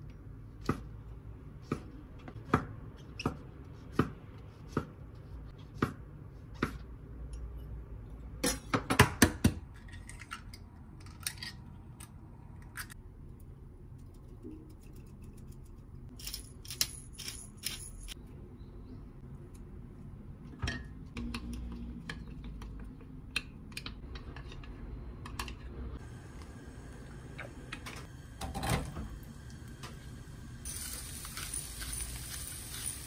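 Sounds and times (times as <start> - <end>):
utensils and containers clinking: 30.6 - 33.0.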